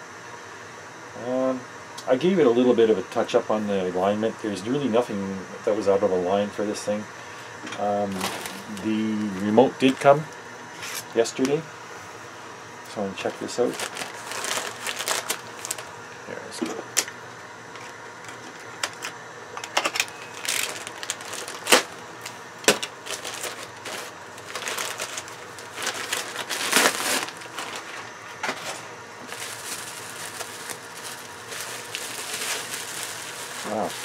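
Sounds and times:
paper and bubble wrap crinkling: 8.0 - 11.1, 13.2 - 15.9, 19.8 - 34.0.

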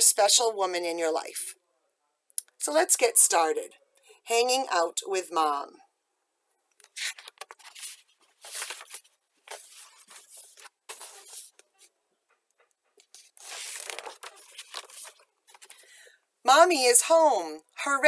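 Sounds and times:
book pages rustling: 6.8 - 11.9, 13.0 - 16.0.

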